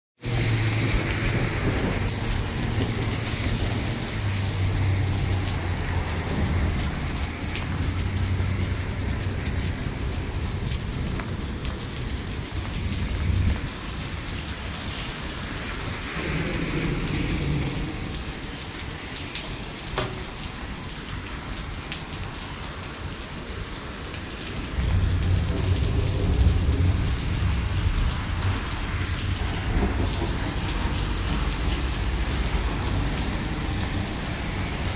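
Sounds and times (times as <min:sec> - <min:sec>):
heavy rain on wet pavement: 0:00.2 - 0:34.9
low rumble: 0:16.2 - 0:18.8.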